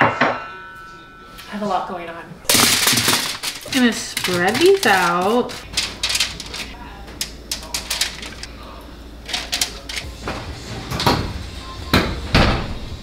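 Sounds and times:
utensils and cookware clattering: 0:02.5 - 0:08.6, 0:09.2 - 0:11.4.

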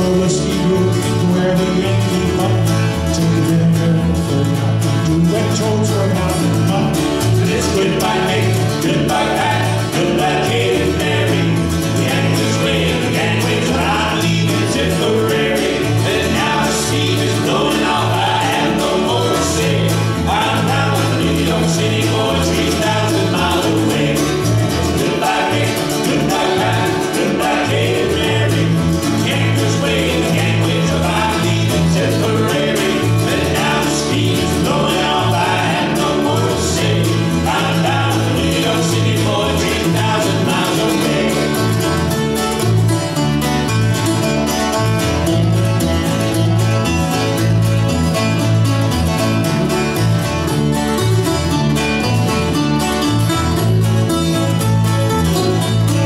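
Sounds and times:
bass line: 0:00.0 - 0:56.0
mandolin: 0:00.0 - 0:56.0
strummed acoustic guitars: 0:00.0 - 0:56.0.

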